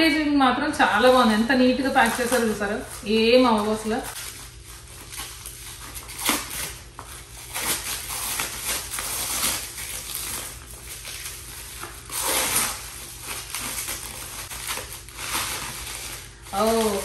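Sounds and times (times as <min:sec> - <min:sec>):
bubble wrap crinkling: 0:00.8 - 0:17.0.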